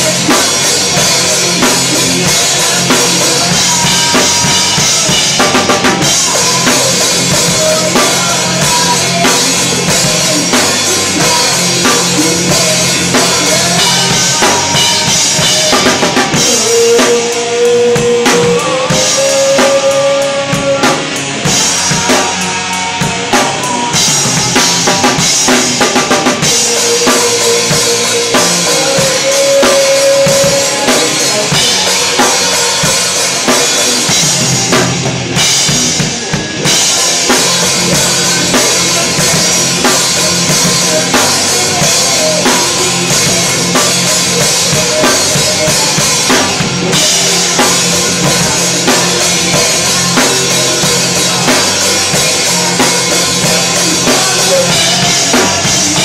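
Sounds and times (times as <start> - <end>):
drum kit beat: 0.0 - 56.0
rock band playing: 0.0 - 56.0.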